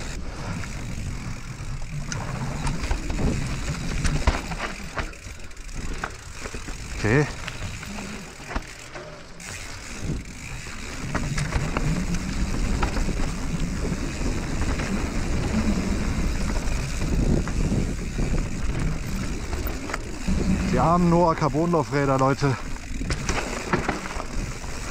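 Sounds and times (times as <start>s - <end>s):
wind rumbling on microphone: 0.0s - 5.0s, 9.9s - 21.9s
bike clicks and rattles: 0.0s - 24.9s
bike tyres on dirt: 0.0s - 24.9s.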